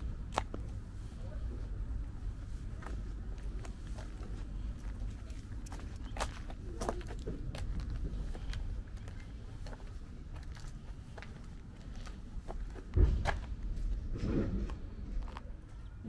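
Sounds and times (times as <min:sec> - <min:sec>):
footsteps on gritty asphalt: 0:00.0 - 0:15.5
low rumble: 0:00.0 - 0:16.0
low thump: 0:12.9 - 0:13.5.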